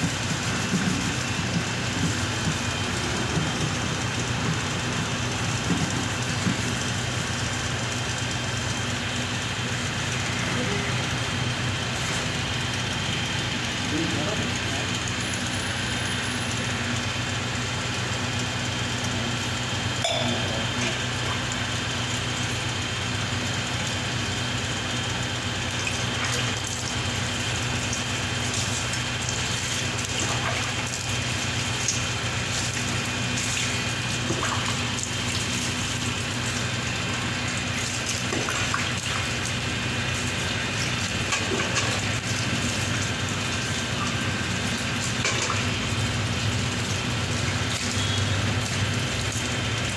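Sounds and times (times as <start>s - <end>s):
water splashing onto floor: 25.6s - 49.9s
bowl scooping water from bucket: 27.9s - 39.6s.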